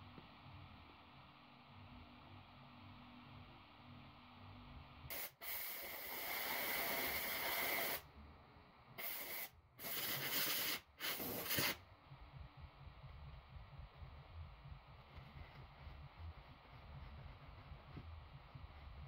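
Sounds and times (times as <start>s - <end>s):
air blow gun hissing blasts: 5.1s - 8.0s, 9.0s - 11.8s.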